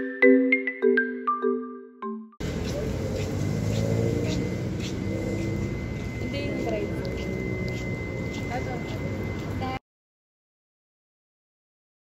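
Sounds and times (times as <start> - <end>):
street ambience with low hum: 2.4 - 9.8.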